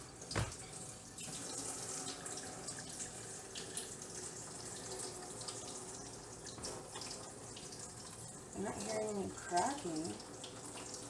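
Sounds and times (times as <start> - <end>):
water splashing into a sink: 0.0 - 11.0.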